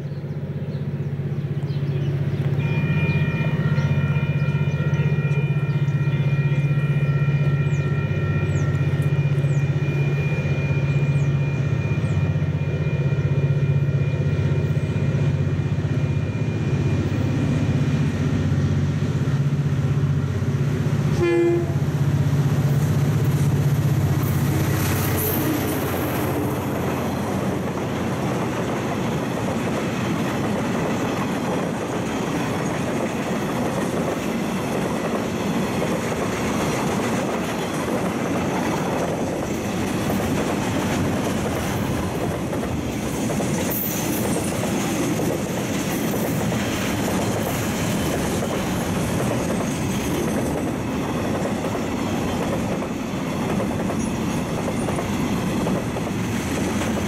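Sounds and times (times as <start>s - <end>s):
locomotive engine drone: 0.0s - 57.0s
wagons rumbling and rail clatter: 0.0s - 57.0s
locomotive horn: 2.6s - 11.7s, 21.1s - 22.0s.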